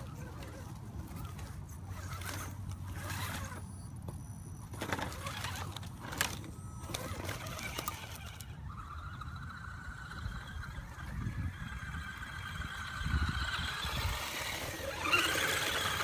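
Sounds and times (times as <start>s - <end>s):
dry leaves crunching under tyres: 4.7s - 9.2s.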